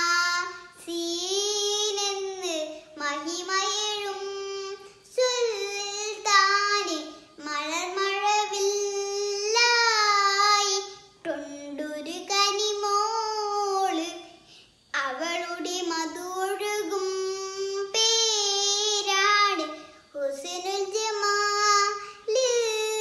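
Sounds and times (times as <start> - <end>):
girl singing solo: 0.0 - 14.2.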